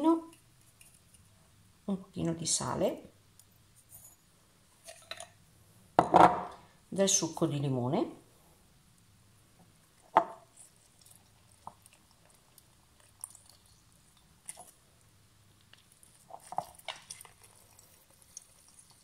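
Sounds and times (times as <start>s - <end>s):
lemon squishing: 10.6s - 14.8s.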